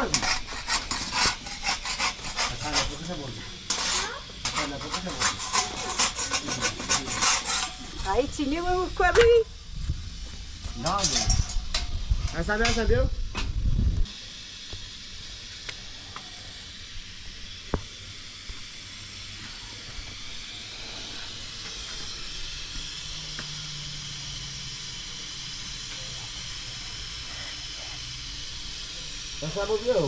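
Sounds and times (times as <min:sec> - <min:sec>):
gas griddle hissing: 0:00.0 - 0:30.0.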